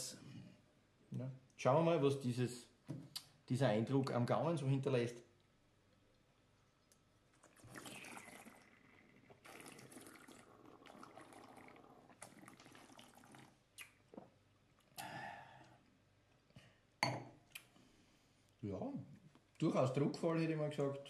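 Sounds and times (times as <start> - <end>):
people slurping wine: 7.4 - 15.8.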